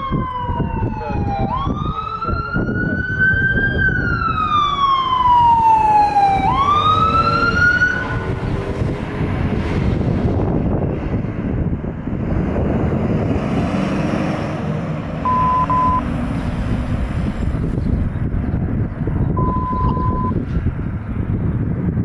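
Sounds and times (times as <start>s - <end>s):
ambulance siren wailing: 0.0s - 8.5s, 15.2s - 16.1s
traffic rumble: 0.0s - 22.0s.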